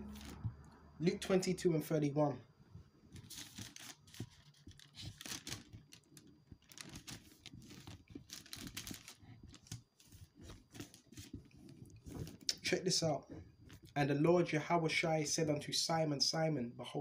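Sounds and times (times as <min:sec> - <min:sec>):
paper pages rustling: 0:03.1 - 0:12.5.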